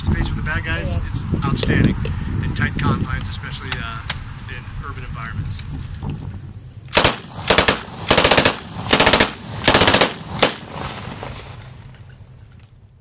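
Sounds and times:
submachine gun firing: 6.9s - 10.8s.

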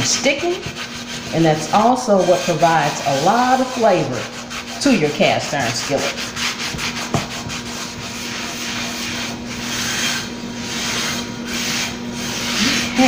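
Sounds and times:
cloth scrubbing salt in skillet: 0.0s - 13.0s.

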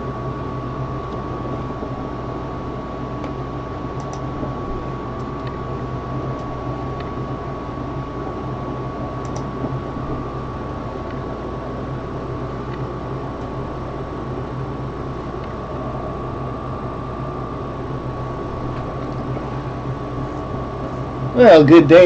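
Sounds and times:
low hum: 0.0s - 22.0s
thin high whine: 0.0s - 22.0s
faint clicks: 4.0s - 4.2s, 9.2s - 9.5s.

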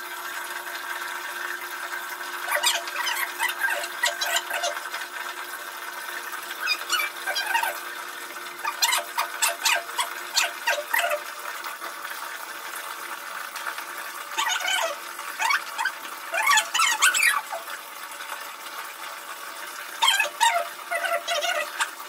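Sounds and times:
tap water pouring into plastic tub: 0.0s - 22.0s
dog whining: 2.5s - 4.8s, 6.6s - 7.8s, 8.6s - 11.2s, 14.4s - 17.6s, 20.0s - 21.9s.

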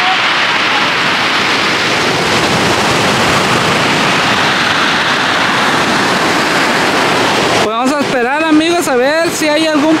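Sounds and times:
surf breaking on rocks: 0.0s - 10.0s.

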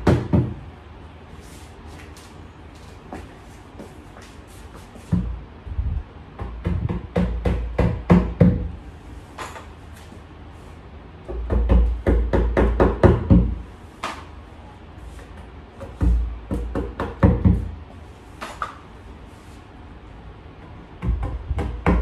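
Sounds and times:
hammer striking wooden panel: 0.0s - 0.6s, 6.4s - 8.7s.

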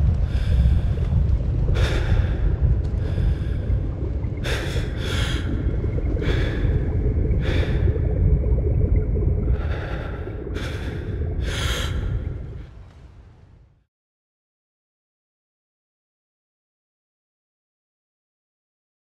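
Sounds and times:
low rumble of water and wind: 0.0s - 13.9s
swimmer gasping breaths: 0.2s - 12.9s.

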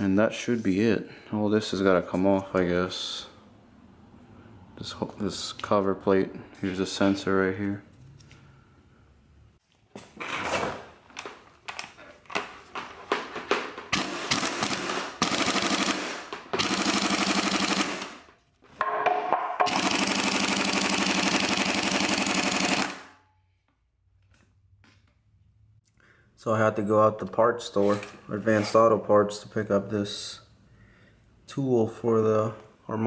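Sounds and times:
impact wrench hammering: 13.9s - 18.1s, 18.8s - 23.1s.

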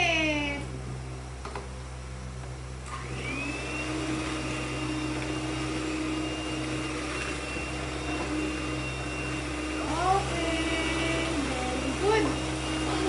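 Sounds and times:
electric hand mixer whine: 2.8s - 13.0s.

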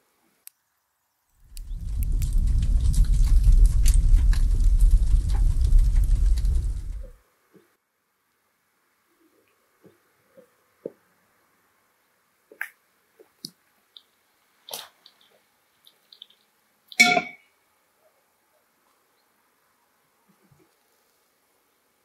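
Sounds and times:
footsteps: 1.4s - 7.2s.

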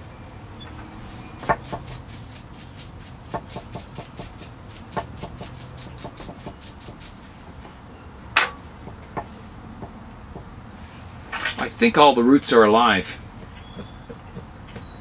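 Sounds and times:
brush scrubbing bark: 1.4s - 7.3s.

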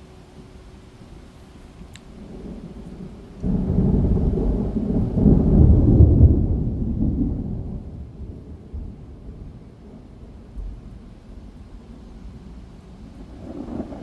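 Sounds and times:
thunder rumbling: 2.1s - 14.0s.

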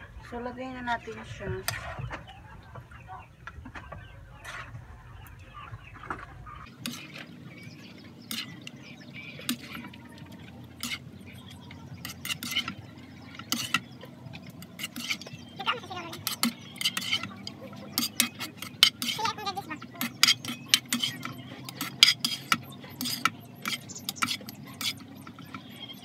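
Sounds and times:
metal ladle scraping a pan: 6.6s - 26.0s.

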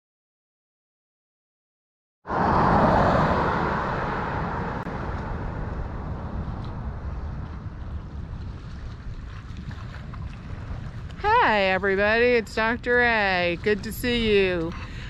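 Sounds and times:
car passing by: 2.3s - 7.8s
wind buffeting microphone: 2.3s - 15.0s.

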